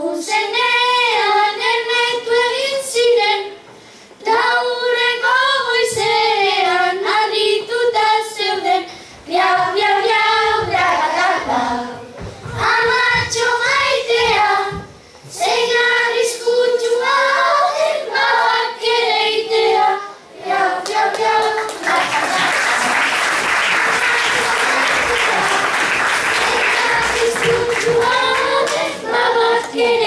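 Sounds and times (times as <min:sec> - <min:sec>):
children singing together: 0:00.0 - 0:30.0
audience applause: 0:21.2 - 0:29.0.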